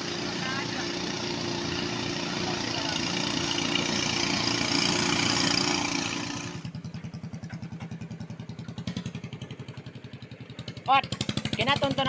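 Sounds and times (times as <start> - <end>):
racing boat engines revving: 0.0 - 7.6, 10.1 - 12.0
small boat engine idling: 0.0 - 12.0.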